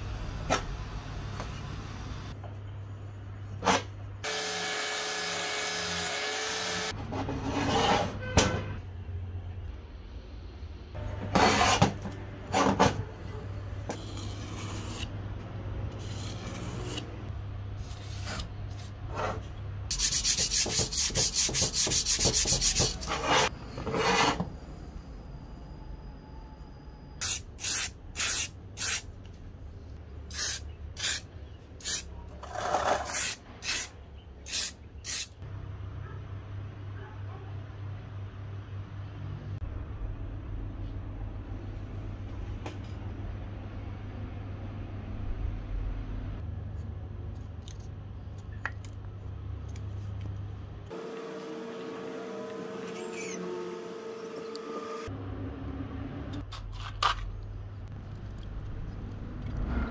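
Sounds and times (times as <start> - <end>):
hand sanding: 19.9 - 23.5.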